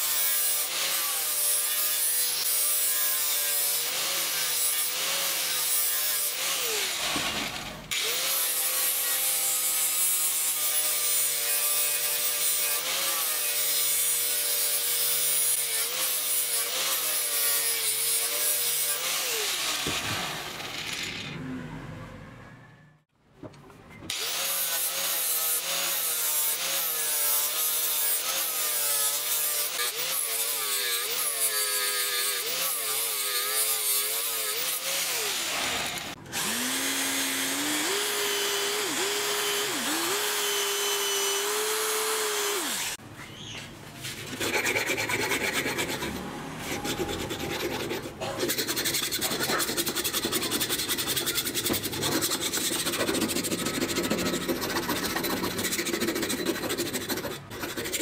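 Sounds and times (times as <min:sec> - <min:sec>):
power drill grinding: 0:00.0 - 0:21.4, 0:24.1 - 0:43.0
metal bar rasping scrape: 0:44.0 - 0:58.0.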